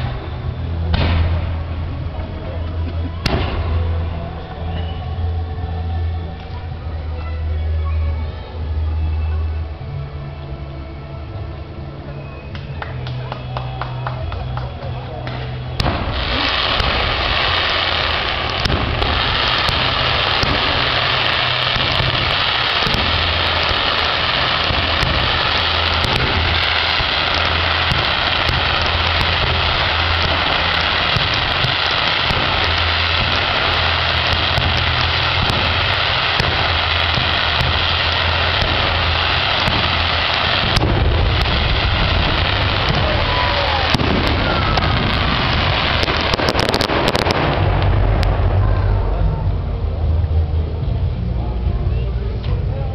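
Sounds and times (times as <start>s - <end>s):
fireworks crackling and fizzing: 0.0s - 7.8s, 8.4s - 51.2s
low rumble: 14.9s - 52.9s.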